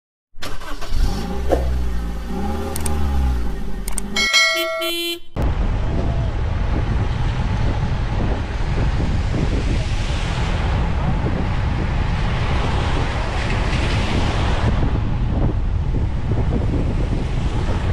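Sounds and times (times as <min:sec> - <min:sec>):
engine revving: 0:00.4 - 0:04.2
road and wind noise: 0:00.4 - 0:17.9
bright jingle: 0:04.2 - 0:05.3.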